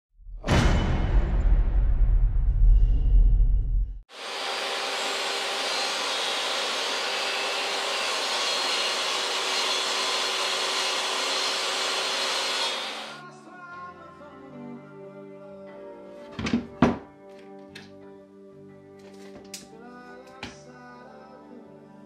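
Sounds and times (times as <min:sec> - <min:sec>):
table saw ripping board: 0:04.1 - 0:13.2.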